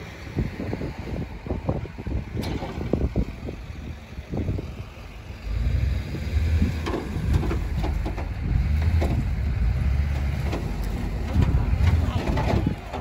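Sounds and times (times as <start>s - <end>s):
truck engine rumbling under load: 0.0s - 13.0s
load knocking and creaking: 6.8s - 9.4s, 10.0s - 13.0s.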